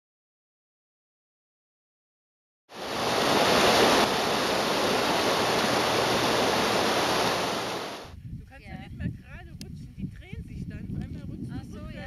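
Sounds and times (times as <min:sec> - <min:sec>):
stream rushing over rocks: 0:02.8 - 0:08.1.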